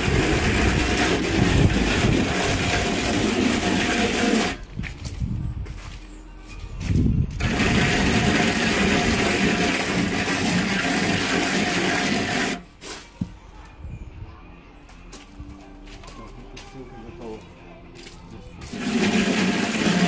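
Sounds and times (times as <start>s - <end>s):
plastic float scraping plaster: 0.0s - 4.6s, 7.4s - 13.1s, 18.7s - 20.0s.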